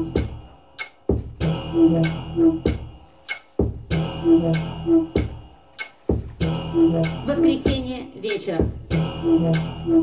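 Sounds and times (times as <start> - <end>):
low two-note bass riff: 6.5 - 7.8.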